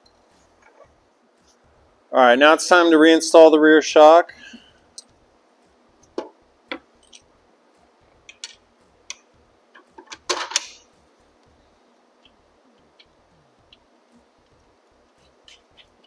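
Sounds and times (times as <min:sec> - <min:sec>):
tools and metal parts clinking: 0:06.7 - 0:07.3, 0:09.8 - 0:10.8.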